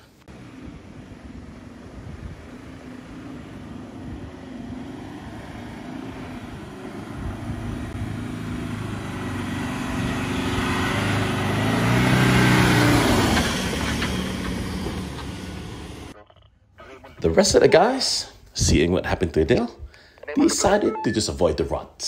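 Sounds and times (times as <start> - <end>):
vehicle engine under load: 0.0 - 16.2.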